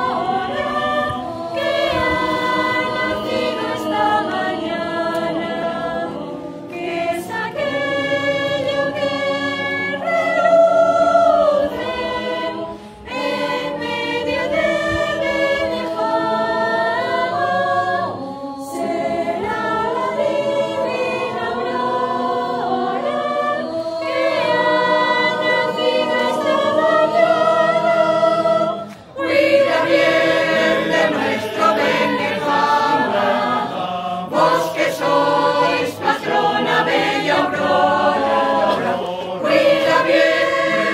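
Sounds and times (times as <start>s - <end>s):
choir singing a hymn: 0.0s - 40.9s
singers breathing: 12.6s - 13.1s.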